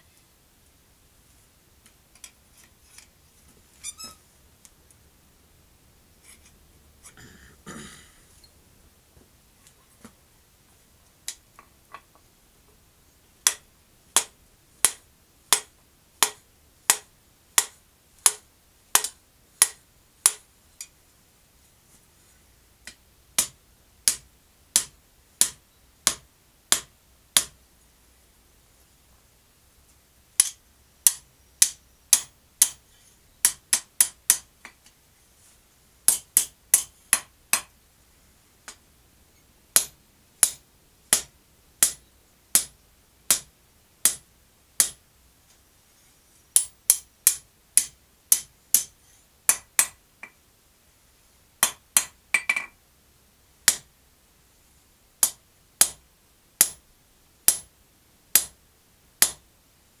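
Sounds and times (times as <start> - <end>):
hammer striking steel on anvil: 57.5 - 57.7.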